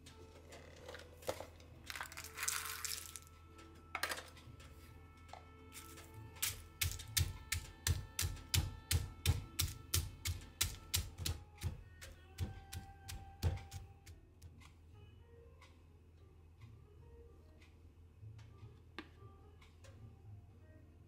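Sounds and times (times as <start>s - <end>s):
soft background music: 0.0s - 21.0s
stone pestle pounding in mortar: 6.4s - 14.2s.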